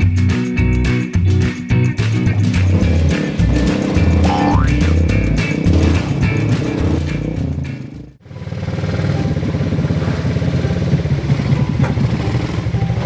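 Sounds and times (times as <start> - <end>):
background music: 0.0 - 8.2, 8.9 - 13.0
small petrol engine idling: 8.2 - 13.0.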